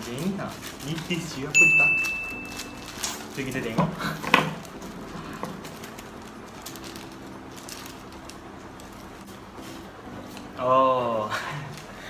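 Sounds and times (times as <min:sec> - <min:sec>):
plastic mailer crinkling: 0:00.0 - 0:10.6.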